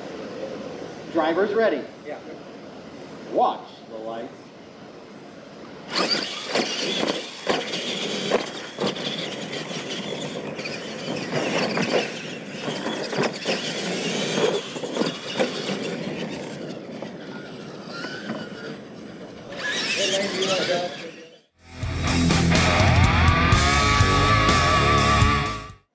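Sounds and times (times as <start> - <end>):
toy truck motors whining: 5.8 - 21.9
toy trucks thumping on ramps: 5.9 - 21.2.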